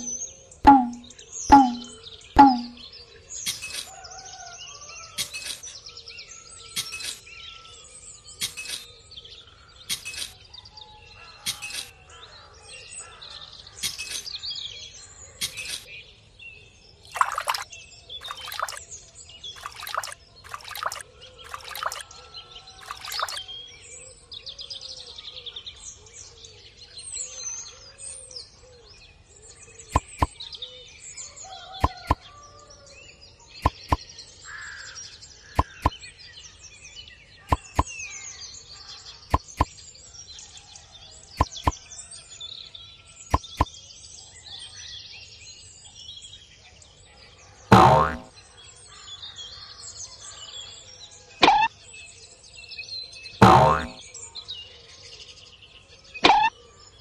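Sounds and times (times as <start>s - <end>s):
small birds chirping: 0.0s - 3.9s, 16.8s - 23.8s, 29.6s - 30.7s, 33.4s - 40.0s
water splashing from a cup: 0.7s - 2.8s, 17.1s - 18.8s, 19.6s - 22.0s, 22.8s - 23.4s, 47.7s - 48.3s, 53.4s - 54.0s.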